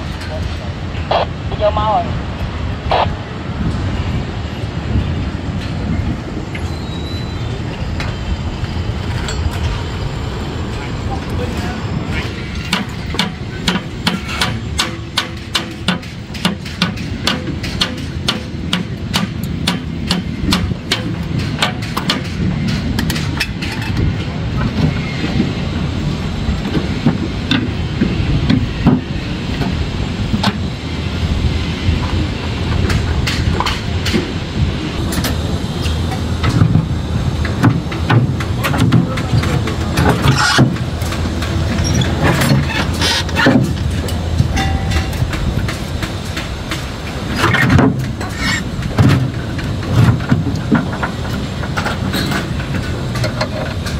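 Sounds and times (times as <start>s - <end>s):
low rumble of site noise: 0.0s - 53.9s
hammer striking formwork: 12.6s - 23.6s.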